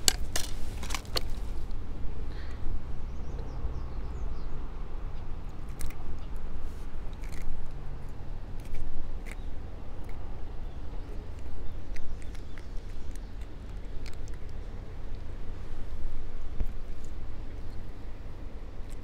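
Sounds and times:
crunchy rustles: 0:00.0 - 0:01.8
steady low rumble: 0:00.0 - 0:19.0.

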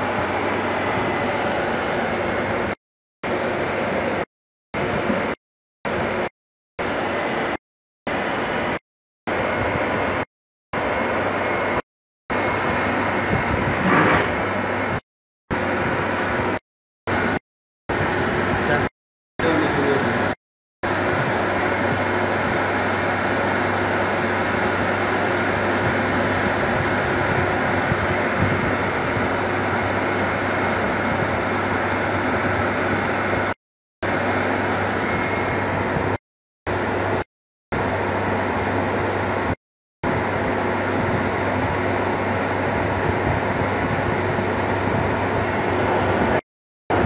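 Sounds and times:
refrigeration compressor humming: 0:00.0 - 0:05.0, 0:20.9 - 0:37.2
condenser fan rushing: 0:00.0 - 0:37.2, 0:37.8 - 0:47.0.

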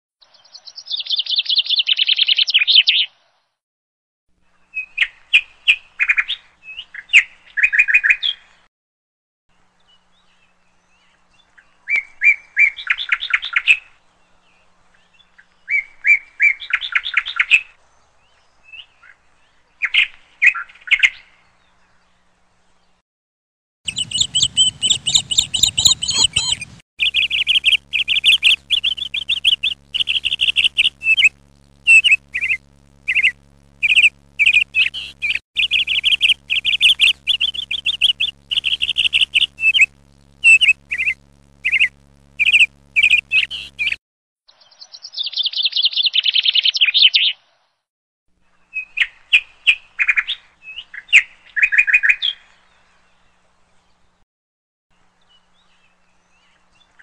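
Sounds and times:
small birds chirping: 0:23.9 - 0:47.4.

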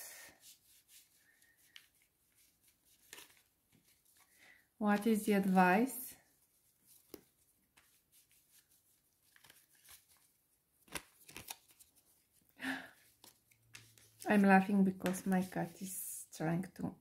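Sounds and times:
cards being shuffled: 0:00.5 - 0:04.4, 0:06.8 - 0:12.3, 0:13.1 - 0:14.2.

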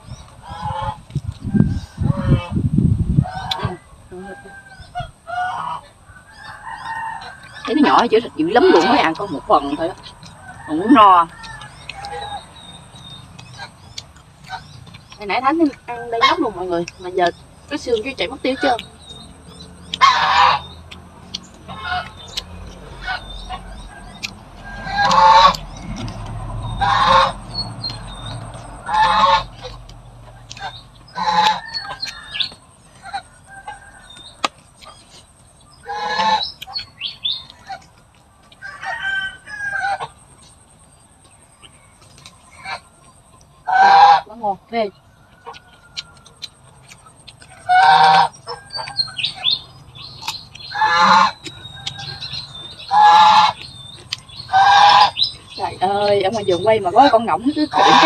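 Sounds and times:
goose honking: 0:03.3 - 0:05.9, 0:06.9 - 0:12.5, 0:15.3 - 0:16.8, 0:20.0 - 0:20.8, 0:21.6 - 0:32.3, 0:35.8 - 0:36.5, 0:43.6 - 0:44.6, 0:47.5 - 0:48.7, 0:50.7 - 0:51.4, 0:52.8 - 0:53.6, 0:54.5 - 0:55.2, 0:55.9 - 0:58.0.

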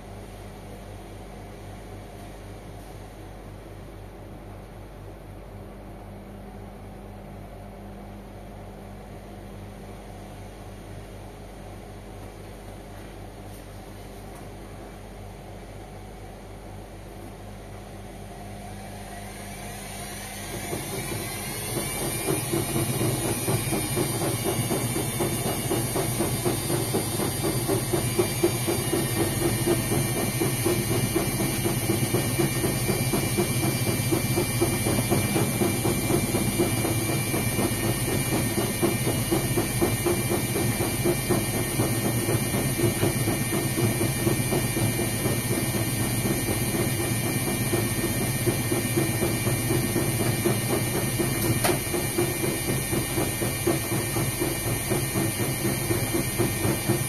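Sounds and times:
washing machine drum spinning: 0:16.3 - 0:57.0.

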